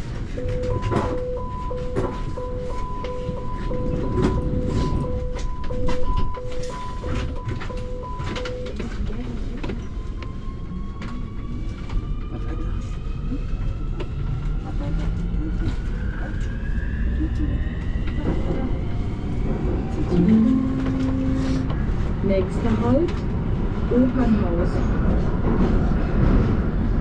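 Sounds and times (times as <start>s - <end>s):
train door warning beeps: 0.3s - 10.9s, 20.1s - 21.9s.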